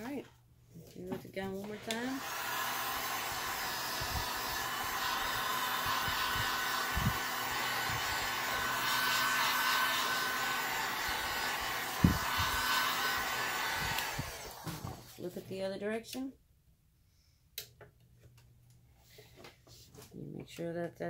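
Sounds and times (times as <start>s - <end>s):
heat gun blowing: 1.6s - 15.2s.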